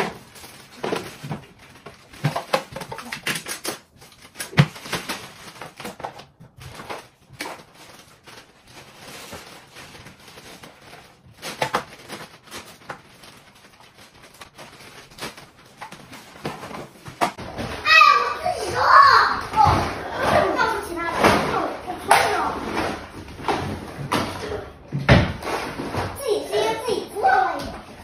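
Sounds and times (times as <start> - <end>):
plastic toys clattering on tiles: 0.0 - 17.8.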